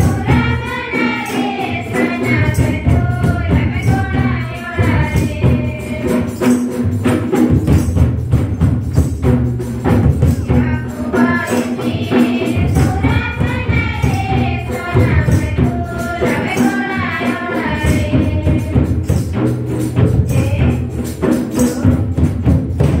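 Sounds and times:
group singing a church song: 0.0 - 6.6, 10.5 - 19.2
barrel drum beat: 0.0 - 23.0
jingling hand percussion: 0.0 - 23.0.

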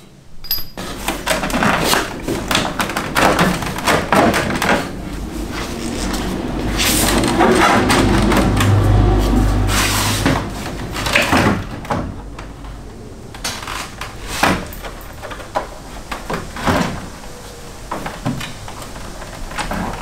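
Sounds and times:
bumper knocking and rattling: 0.8 - 8.9
low steady hum: 1.9 - 14.1.

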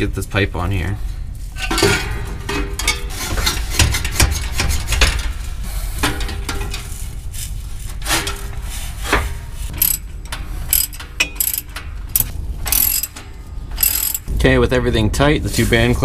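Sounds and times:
metal pipe scraping: 1.5 - 14.3.

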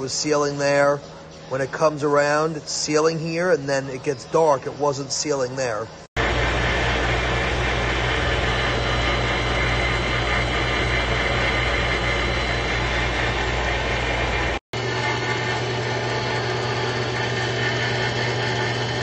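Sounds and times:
machine motor humming: 5.7 - 19.0
coolant rushing: 6.2 - 19.0.

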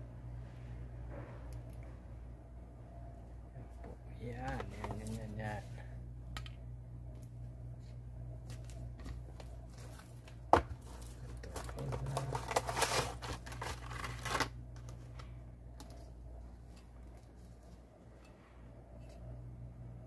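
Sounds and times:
cardboard and plastic crinkling: 4.4 - 5.4, 8.4 - 15.3.

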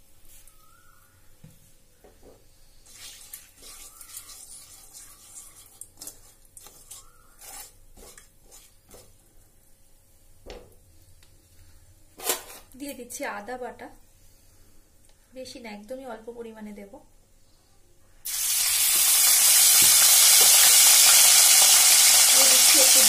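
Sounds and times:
oil sizzling quietly: 2.7 - 10.2, 18.2 - 23.0
spatula scraping pan: 3.6 - 9.2.

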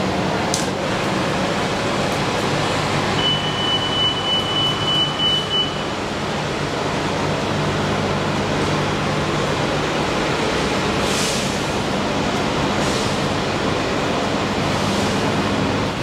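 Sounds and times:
buses idling: 0.0 - 16.0
high steady tone: 3.2 - 6.0.

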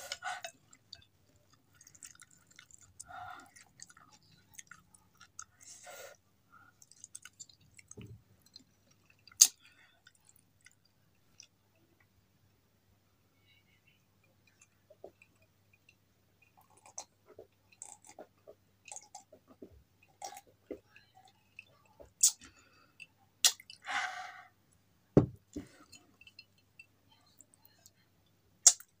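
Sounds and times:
wet mouth clicks and smacks: 9.2 - 9.6, 22.2 - 22.5, 23.4 - 23.8, 28.6 - 29.0
low knock: 25.2 - 25.4.

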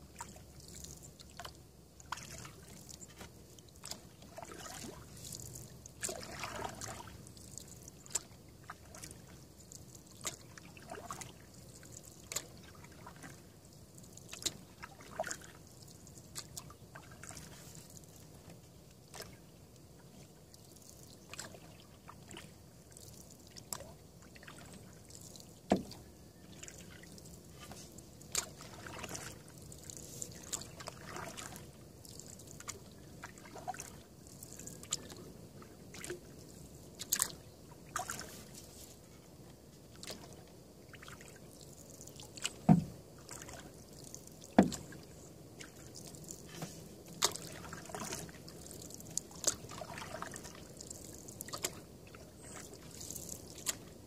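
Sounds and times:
paddle strokes in water: 0.0 - 54.0
water dripping off paddle: 0.2 - 13.4, 14.0 - 18.2, 20.5 - 35.2, 37.0 - 38.4, 40.0 - 53.9
light knocks on canoe: 25.7 - 26.0, 42.5 - 43.0, 44.6 - 45.0.

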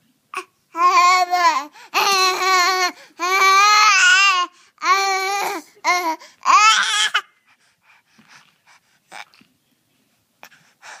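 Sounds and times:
baby breathing and mouth noises: 7.2 - 11.0.

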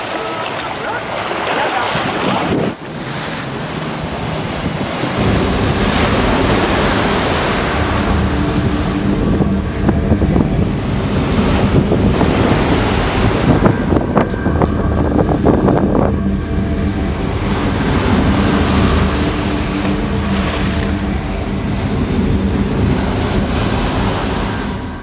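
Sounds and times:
water washing over quay edge: 0.0 - 25.0
wind buffeting microphone: 0.5 - 25.0.

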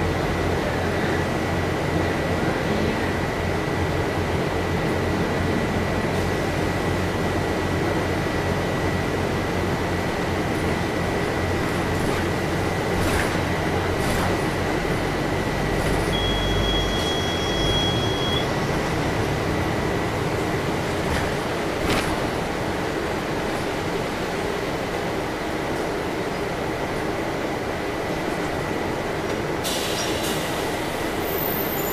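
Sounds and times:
bus engine and road noise: 0.0 - 31.9
high beep: 16.1 - 18.6.

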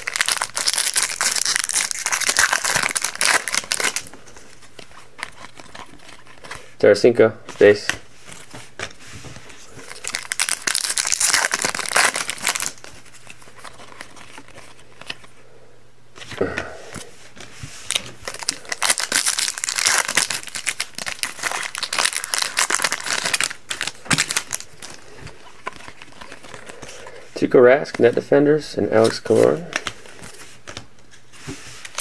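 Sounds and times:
card pack wrappers tearing and crinkling: 0.0 - 6.7, 9.6 - 15.3, 17.9 - 27.2, 31.8 - 32.0.

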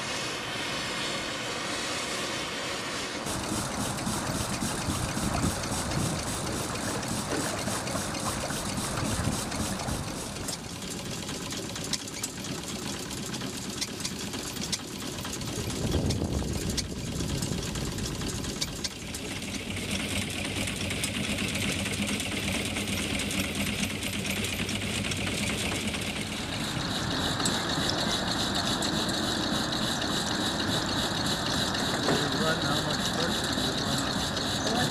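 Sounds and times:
escaping steam hiss: 0.0 - 10.7, 25.1 - 34.9
steam engine mechanical clatter: 3.2 - 34.9.

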